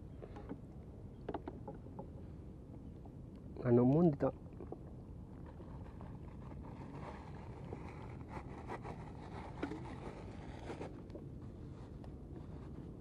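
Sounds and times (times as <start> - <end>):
wind rumble on microphone: 0.0 - 13.0
faint rustles and clicks: 4.6 - 13.0.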